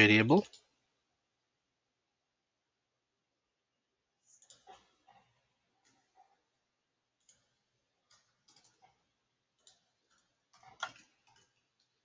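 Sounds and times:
computer keyboard typing: 0:04.3 - 0:06.4, 0:07.2 - 0:12.0.

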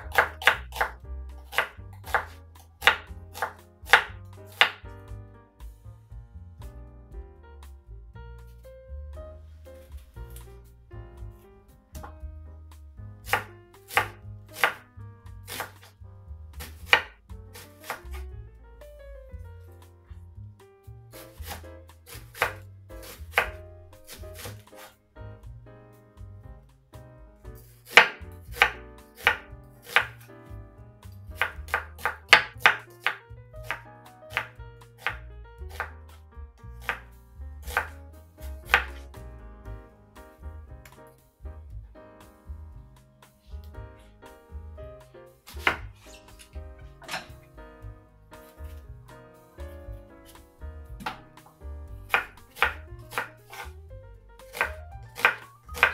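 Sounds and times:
knife chopping on wooden board: 0:00.0 - 0:04.9, 0:13.2 - 0:14.8, 0:15.4 - 0:16.0, 0:16.6 - 0:18.3, 0:21.2 - 0:25.0, 0:27.6 - 0:30.3, 0:31.2 - 0:36.1, 0:36.8 - 0:39.2, 0:45.4 - 0:47.5, 0:49.6 - 0:53.8, 0:54.4 - 0:55.9.

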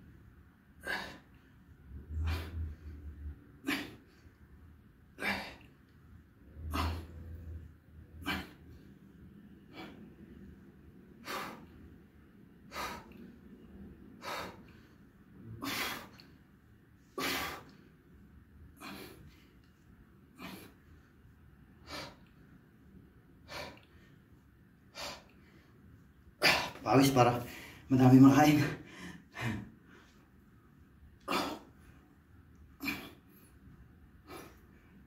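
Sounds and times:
man exhaling forcefully: 0:06.6 - 0:07.3.

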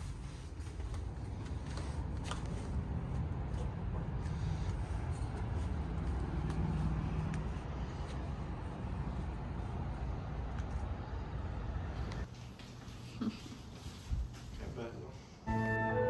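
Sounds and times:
distant city traffic rumble: 0:00.0 - 0:13.0
low engine hum: 0:00.1 - 0:12.3.

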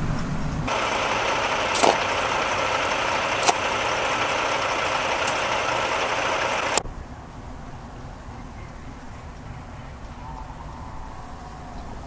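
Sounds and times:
truck engine idling: 0:00.7 - 0:06.8.

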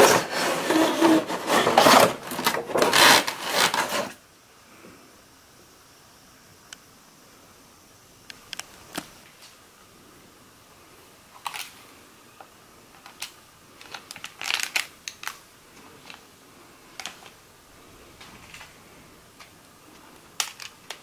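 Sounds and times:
plastic parts clicking: 0:11.4 - 0:11.8, 0:13.0 - 0:15.4, 0:17.0 - 0:17.4, 0:20.4 - 0:21.0.

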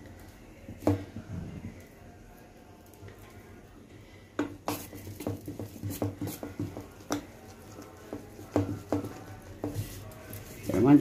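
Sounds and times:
spoon beating batter in bowl: 0:04.4 - 0:11.0.

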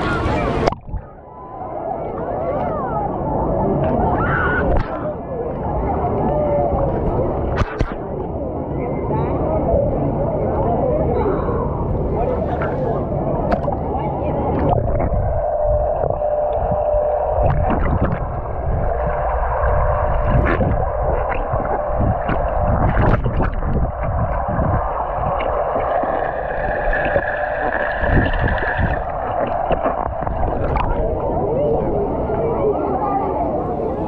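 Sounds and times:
water sloshing and gurgling: 0:00.0 - 0:02.9, 0:03.8 - 0:08.4, 0:11.8 - 0:32.8
small water splashes: 0:13.4 - 0:13.9, 0:14.5 - 0:31.2.

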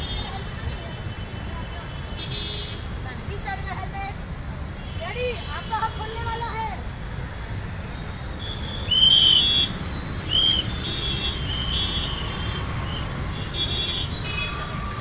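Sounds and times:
road traffic rumble: 0:00.0 - 0:15.0
traffic whistle blasts: 0:08.3 - 0:14.8.

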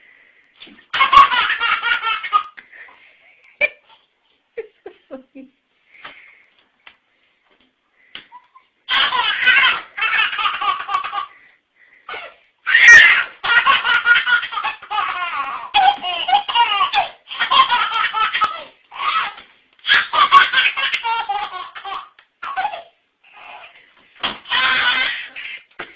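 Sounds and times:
baby belly laughing: 0:00.7 - 0:02.6, 0:08.2 - 0:11.4, 0:12.0 - 0:23.8, 0:24.4 - 0:25.9.

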